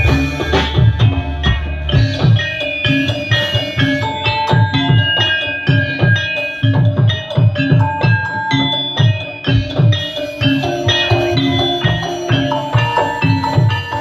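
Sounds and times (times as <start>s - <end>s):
low drum strokes falling in pitch: 0.0s - 5.1s
metallophones struck with mallets: 0.0s - 14.0s.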